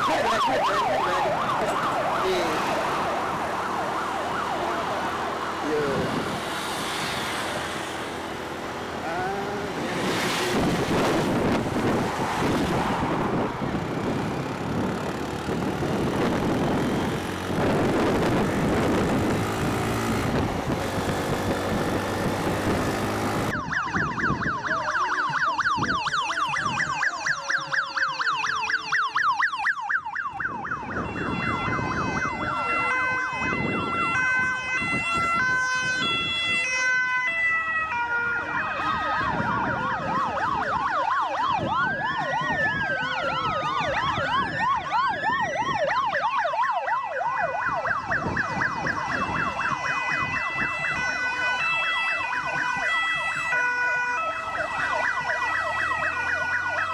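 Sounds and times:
fast warbling siren yelp: 0.0 - 6.3, 22.7 - 56.9
two-tone hi-lo siren: 0.0 - 8.3, 9.0 - 56.9
slow wailing siren: 0.0 - 56.9.

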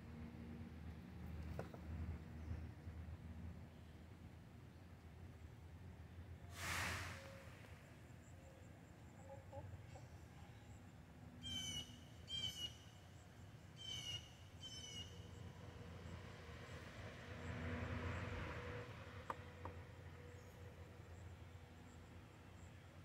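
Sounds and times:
high trilling bird calls: 11.4 - 13.0, 13.8 - 15.3.

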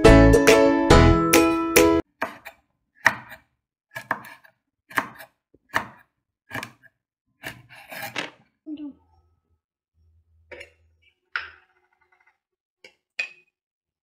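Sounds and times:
knife cutting on wooden board: 2.2 - 8.4.

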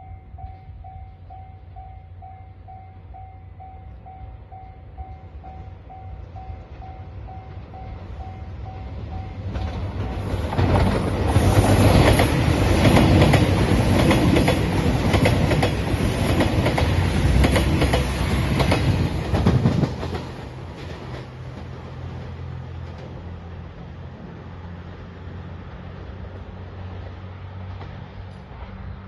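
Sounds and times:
diesel train engines: 0.0 - 29.0
wheels clacking over rail joints: 9.4 - 23.5.

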